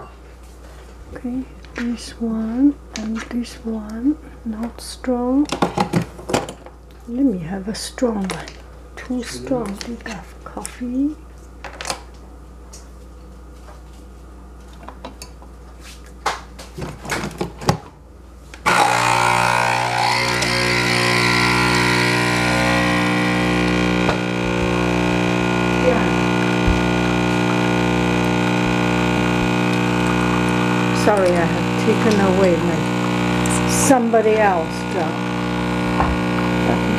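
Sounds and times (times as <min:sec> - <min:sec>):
coffee machine pump buzzing: 0:18.6 - 0:36.9.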